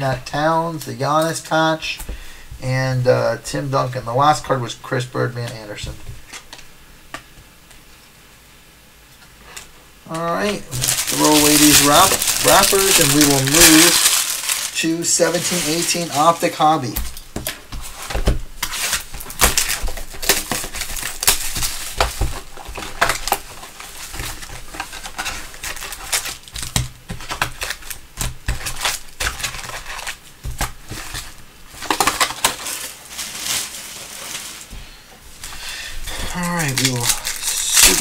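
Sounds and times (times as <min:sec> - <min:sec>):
cardboard and wrappers rustling: 0:09.4 - 0:38.0.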